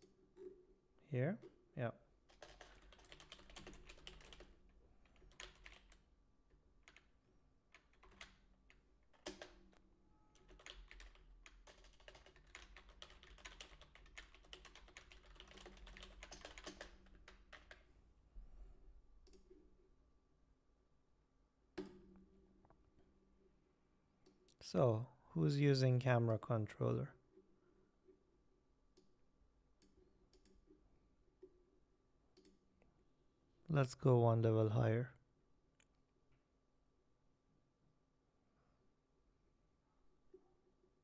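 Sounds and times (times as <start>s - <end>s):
typing on computer keyboard: 2.3s - 6.0s, 7.7s - 9.8s, 10.4s - 17.9s.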